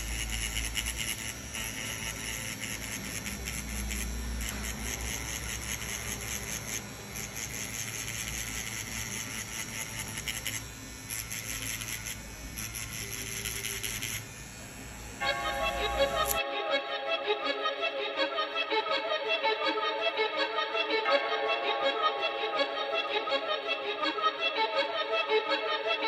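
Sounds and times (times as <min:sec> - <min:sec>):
tattoo machine buzzing: 0:00.0 - 0:16.4.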